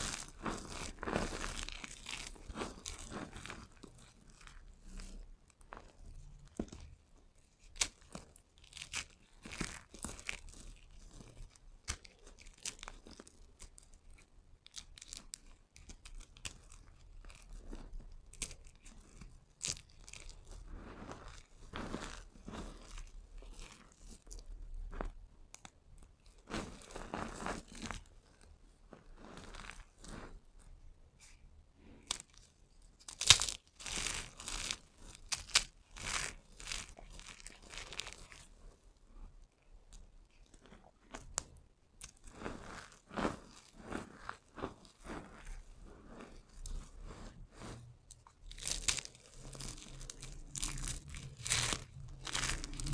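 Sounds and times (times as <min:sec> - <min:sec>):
soap shavings crunching between fingers: 0:07.6 - 0:11.2, 0:11.8 - 0:25.7, 0:33.0 - 0:38.5, 0:48.2 - 0:52.9.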